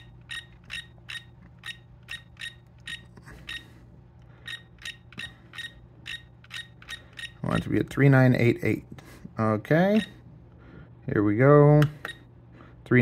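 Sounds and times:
high click-beeps of scroll wheel: 0:00.3 - 0:03.6, 0:04.5 - 0:07.4.

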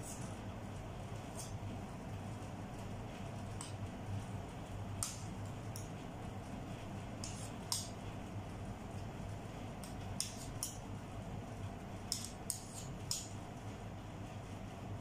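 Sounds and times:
metal spoons clicking and scraping: 0:12.1 - 0:13.3.

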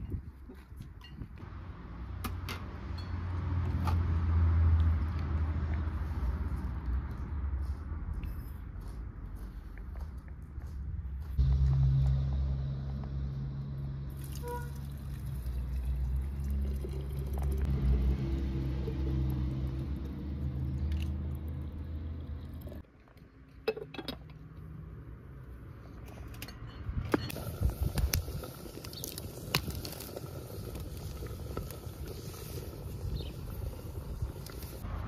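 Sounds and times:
water pouring into teapot: 0:14.1 - 0:21.2.

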